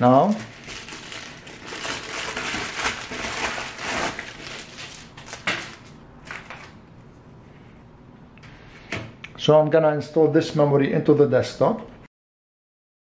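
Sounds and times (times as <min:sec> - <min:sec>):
plastic mailer crinkling and tearing: 0:00.0 - 0:06.8
plastic clamshell crackles: 0:00.3 - 0:06.7.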